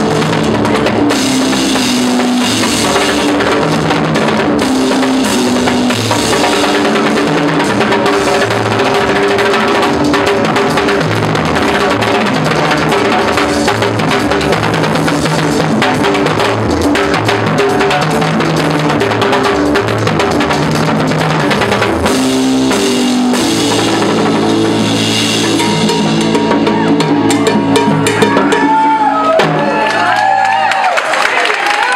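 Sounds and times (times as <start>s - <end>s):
timbales played with sticks: 0.0s - 30.2s
live band playing: 0.0s - 30.7s.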